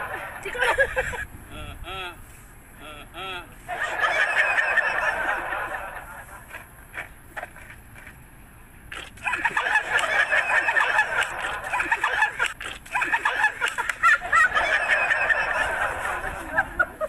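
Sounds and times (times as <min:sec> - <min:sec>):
group shrieking with laughter: 0:03.7 - 0:06.0, 0:09.2 - 0:17.0.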